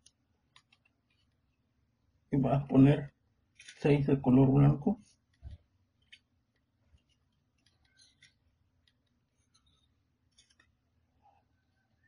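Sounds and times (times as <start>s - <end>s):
paper clicks and rustles: 0.5s - 1.4s, 3.6s - 3.9s, 5.2s - 10.8s.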